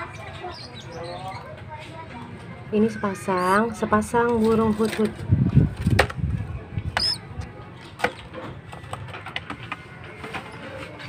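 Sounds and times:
short high bird squeak: 0:07.0 - 0:07.2.

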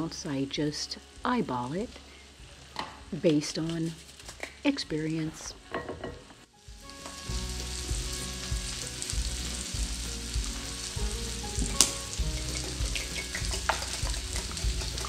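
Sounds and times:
whisk stirring moist mixture: 0:12.2 - 0:15.0.

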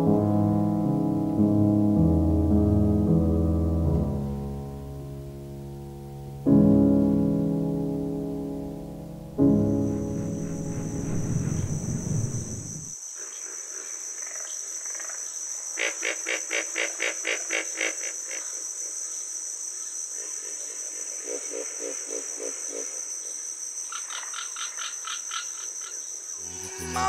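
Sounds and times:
piano music: 0:00.0 - 0:12.9, 0:26.4 - 0:27.0
high insect trill: 0:09.4 - 0:13.3, 0:22.6 - 0:27.0
frogs croaking: 0:09.4 - 0:27.0.

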